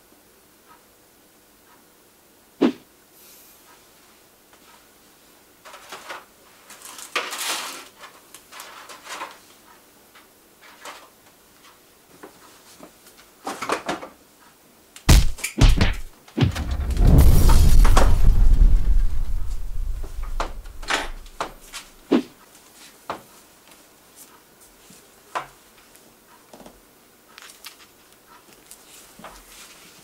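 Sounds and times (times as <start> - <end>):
rustling and clattering on counter: 5.6 - 9.6, 10.2 - 14.2
sharp knock: 15.1 - 21.8.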